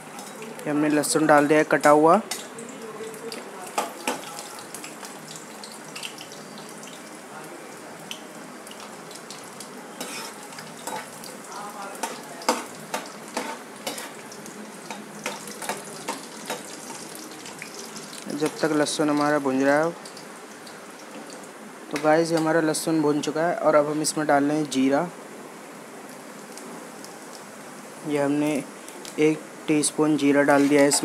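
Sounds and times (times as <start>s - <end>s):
garlic sizzling in oil: 0.0s - 31.0s
spoon scraping a pan: 10.0s - 11.2s, 12.0s - 14.2s.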